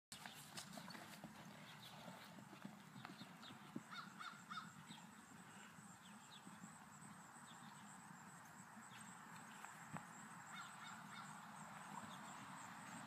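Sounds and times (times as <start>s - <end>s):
horse hoofbeats on grass: 0.1s - 7.9s, 8.5s - 13.0s
bird calling: 3.0s - 5.1s, 10.5s - 12.6s.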